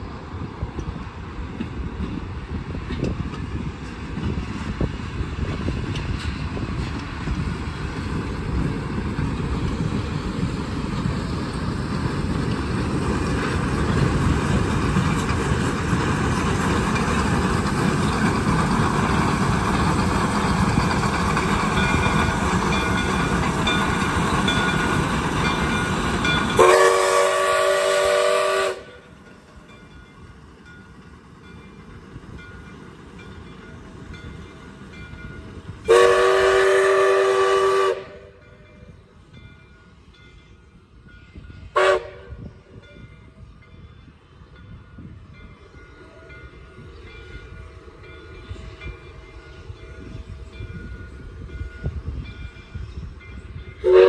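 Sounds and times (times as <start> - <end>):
train wheels clattering on rails: 0.0 - 54.0
steam whistle chord: 26.6 - 29.0, 35.9 - 38.4, 41.8 - 42.5, 53.8 - 54.0.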